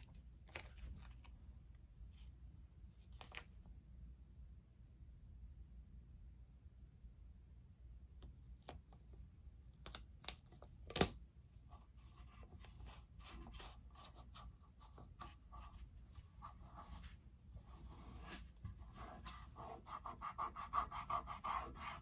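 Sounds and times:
tape crinkling and rubbing: 0.0s - 1.4s.

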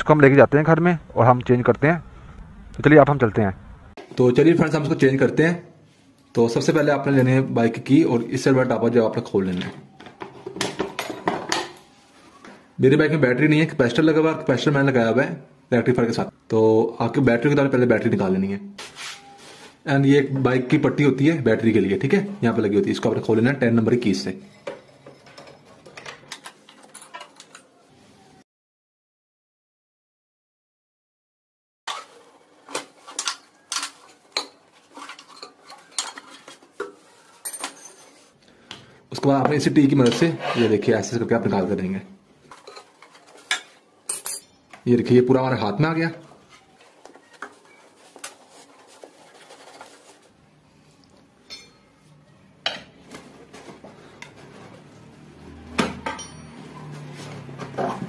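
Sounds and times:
wrench clinking on metal: 44.1s - 44.6s, 56.1s - 56.7s
metal clinks and knocks: 56.0s - 57.0s.

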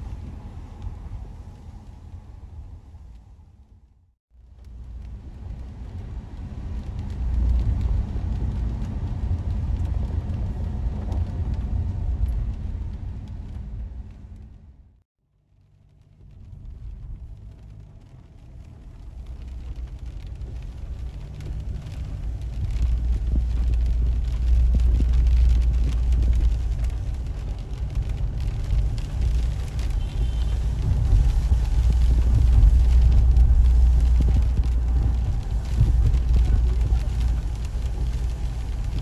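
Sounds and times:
car engine rumble: 0.0s - 39.0s
tyre noise on wet road: 0.0s - 39.0s.

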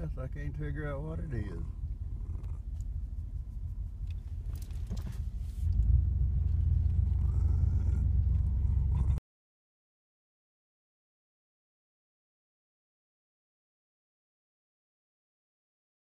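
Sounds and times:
pickup truck engine rumble: 0.0s - 9.2s.

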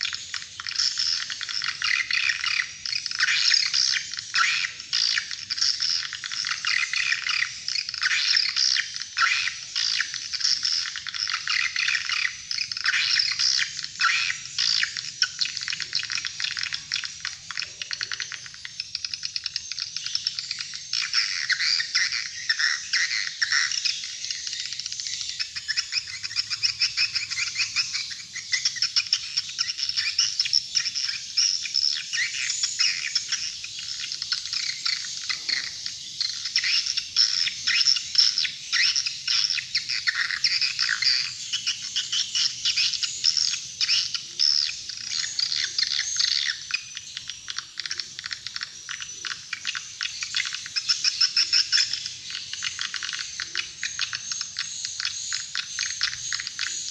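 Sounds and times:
rapid high twittering chirps: 0.0s - 56.9s.

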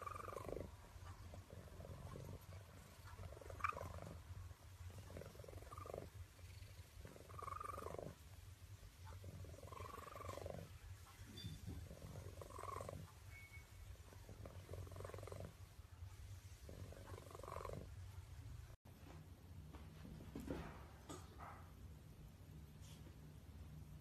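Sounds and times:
cat purring: 0.0s - 18.8s.

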